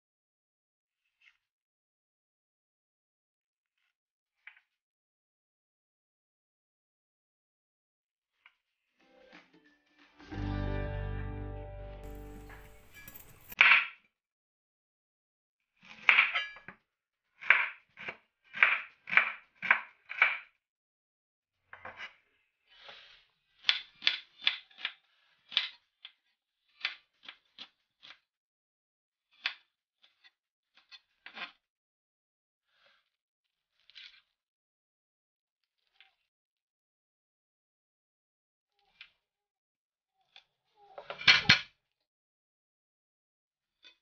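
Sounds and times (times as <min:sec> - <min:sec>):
knife chopping on plastic board: 0:17.4 - 0:20.5.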